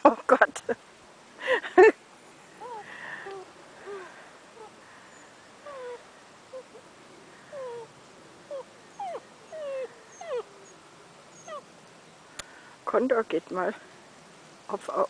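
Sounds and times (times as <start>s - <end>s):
puppies whimpering: 5.6s - 6.8s, 7.5s - 7.9s, 8.5s - 11.7s.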